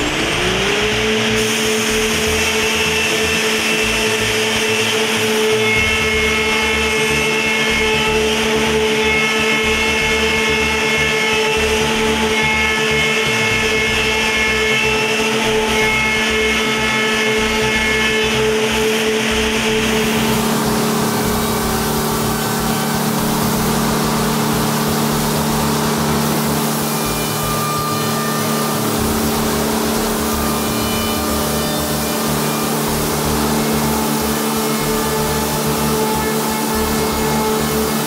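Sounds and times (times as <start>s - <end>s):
high-pitched spindle whine: 0.0s - 38.0s
machining noise: 0.0s - 38.0s.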